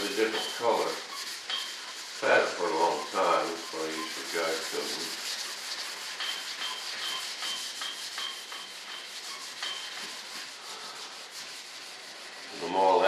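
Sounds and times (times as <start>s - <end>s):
sandpaper rubbing by hand: 0.0s - 13.0s.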